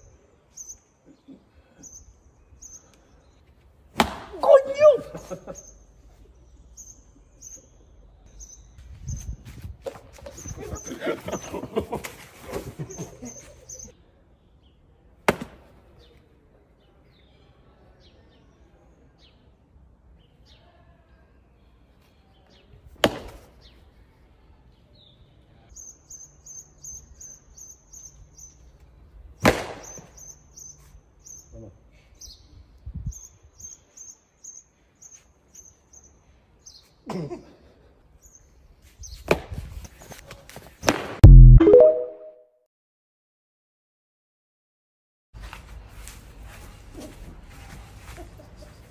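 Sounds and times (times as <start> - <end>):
sharp smacks: 3.9 - 4.3, 15.3 - 15.6, 23.0 - 23.5, 29.4 - 30.1
bird chirping: 5.3 - 9.4, 12.9 - 14.8.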